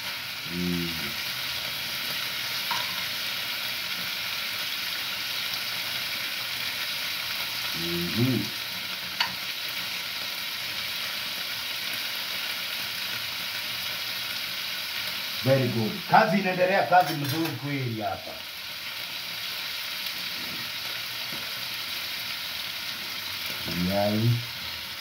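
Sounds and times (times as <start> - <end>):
meat sizzling in a pan: 0.0 - 25.0
person vocal sound: 0.4 - 1.2, 7.8 - 8.6.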